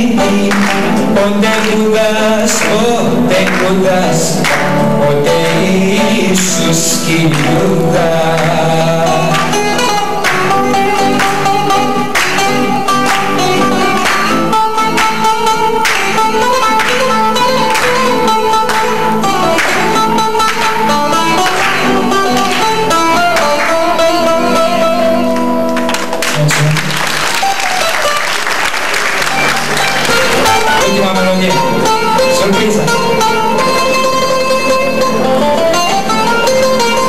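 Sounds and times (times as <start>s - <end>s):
bouzouki and electric guitar: 0.0s - 37.0s
audience applause: 8.4s - 31.6s.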